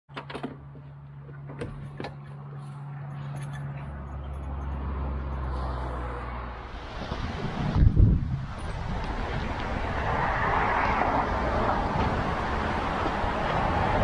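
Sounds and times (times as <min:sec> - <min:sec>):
vehicle engine humming: 0:00.1 - 0:14.0
rush of noise: 0:06.2 - 0:14.0.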